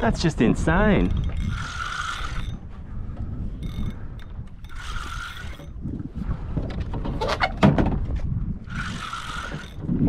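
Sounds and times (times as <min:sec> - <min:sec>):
water and wind rumble: 0:00.0 - 0:10.0
fishing reel buzzing: 0:01.0 - 0:02.7, 0:03.5 - 0:05.8, 0:08.6 - 0:10.0.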